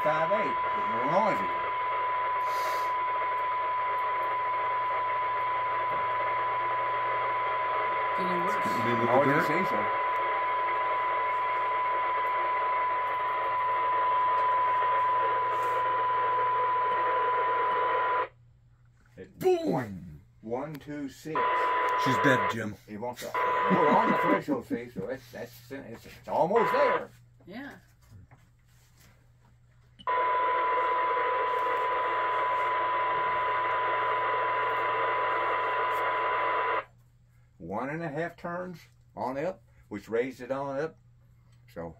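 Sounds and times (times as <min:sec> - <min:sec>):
radio hiss: 0:00.0 - 0:18.3, 0:21.2 - 0:27.1, 0:30.1 - 0:36.8
radio test tone: 0:00.0 - 0:18.3, 0:21.3 - 0:24.8, 0:26.1 - 0:27.1, 0:30.1 - 0:36.9.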